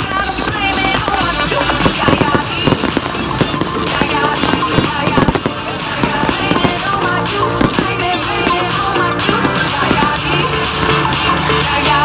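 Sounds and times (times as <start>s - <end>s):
fireworks banging: 0.0s - 12.0s
music playing: 0.0s - 12.0s.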